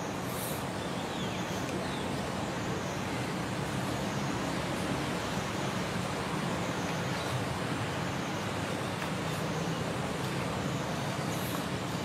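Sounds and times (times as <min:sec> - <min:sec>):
broad hiss: 0:00.0 - 0:01.7, 0:07.0 - 0:12.0.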